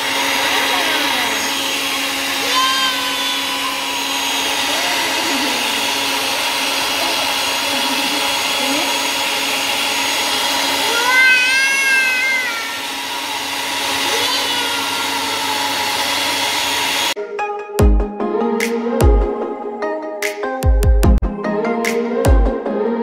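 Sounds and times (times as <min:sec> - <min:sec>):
blender running: 0:00.0 - 0:17.2
toddler squealing: 0:02.4 - 0:04.0, 0:10.8 - 0:13.0, 0:14.1 - 0:15.8.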